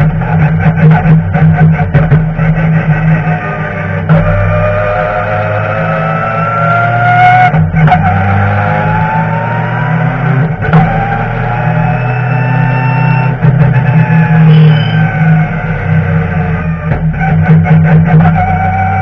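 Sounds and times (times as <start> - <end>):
race car engine accelerating: 0.0 - 19.0.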